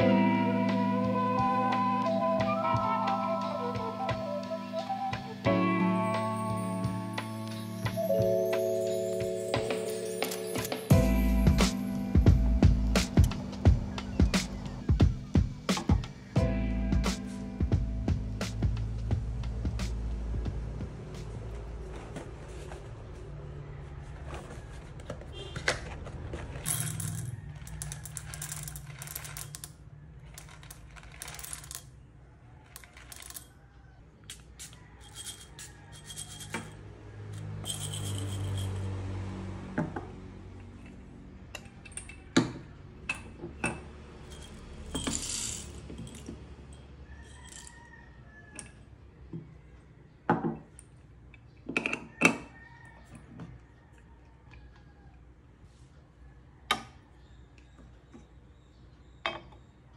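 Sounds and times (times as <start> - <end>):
coffee beans rattling in bowl: 26.6 - 29.7, 30.3 - 31.8, 35.0 - 36.7, 44.3 - 46.2.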